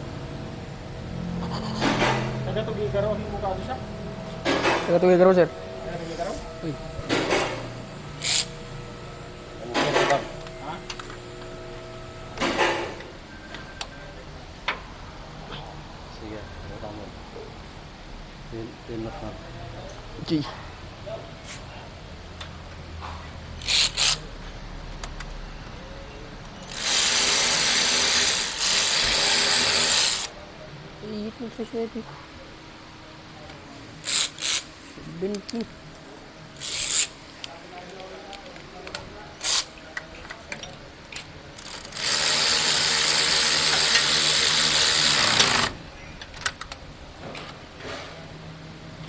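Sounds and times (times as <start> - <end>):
power wrench whirring: 6.4 - 9.0, 23.6 - 24.3, 26.6 - 30.3, 34.0 - 34.7, 36.6 - 37.2, 39.4 - 39.7, 41.6 - 45.8.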